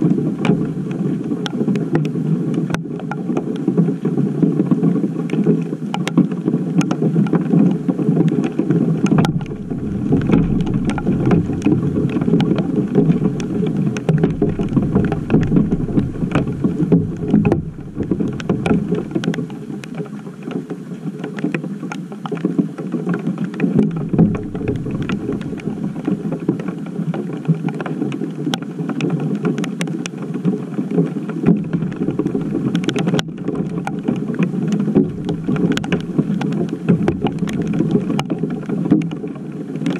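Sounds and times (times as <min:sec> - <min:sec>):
rain and hail pelting: 0:06.4 - 0:21.5, 0:22.3 - 0:29.9, 0:30.8 - 0:39.9.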